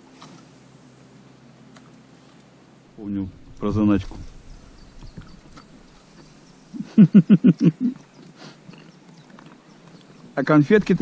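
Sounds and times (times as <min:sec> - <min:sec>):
person laughing: 0:06.7 - 0:08.0.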